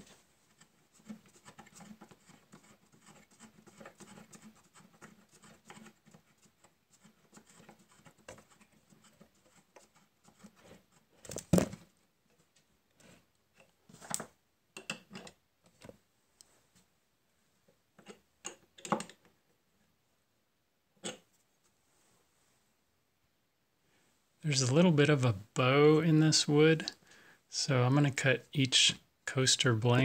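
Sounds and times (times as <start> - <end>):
hands scratching on workbench: 0.5 - 11.1
wooden clamp knocks and clicks: 18.0 - 19.3.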